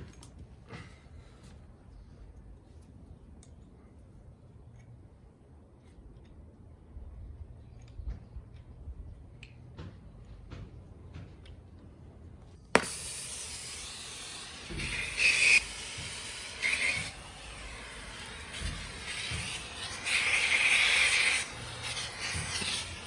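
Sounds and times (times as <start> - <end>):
gas torch hissing: 12.7 - 23.0.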